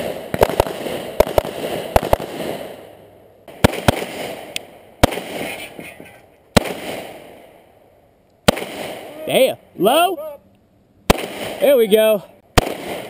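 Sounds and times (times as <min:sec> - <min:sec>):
pistol shots with echo: 0:03.5 - 0:05.6, 0:06.5 - 0:07.6, 0:08.4 - 0:09.2, 0:11.1 - 0:13.0.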